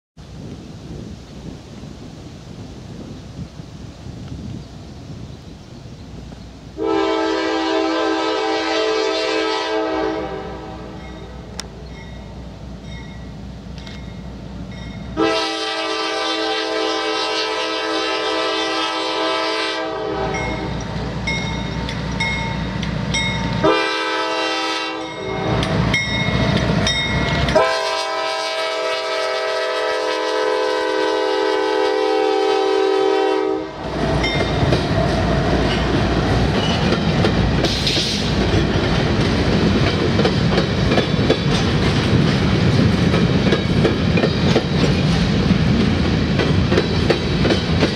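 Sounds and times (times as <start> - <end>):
locomotive air horn blasts: 6.8 - 11.1, 15.2 - 20.8, 23.6 - 25.8, 27.5 - 34.0
train wheels clattering on rails: 11.0 - 15.2, 20.3 - 23.7, 25.1 - 27.7, 33.9 - 47.9
locomotive engine noise: 33.7 - 47.9.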